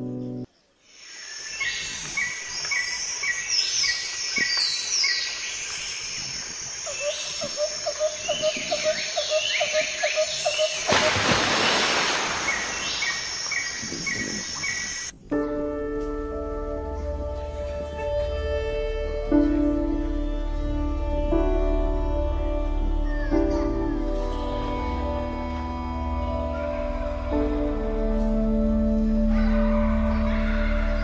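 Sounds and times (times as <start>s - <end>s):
music: 0.0s - 0.5s, 15.2s - 31.0s
birds chirping and calling: 1.4s - 11.8s, 12.4s - 15.1s.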